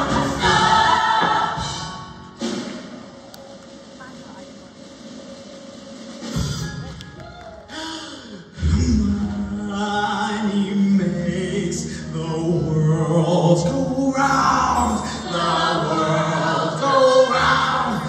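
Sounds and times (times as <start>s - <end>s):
choir singing in harmony: 0.0s - 3.0s, 8.7s - 18.0s.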